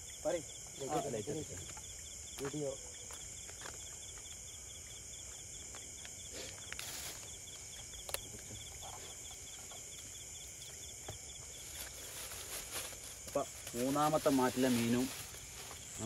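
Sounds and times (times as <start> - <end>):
insects trilling and chirping: 0.0 - 16.0
rustling: 11.4 - 16.0.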